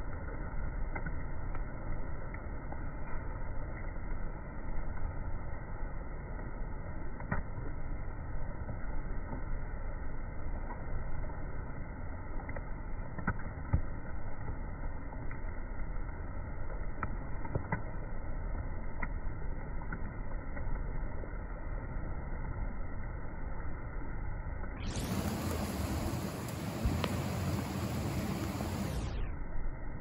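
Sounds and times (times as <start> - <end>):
faint clicks: 10.6 - 15.6.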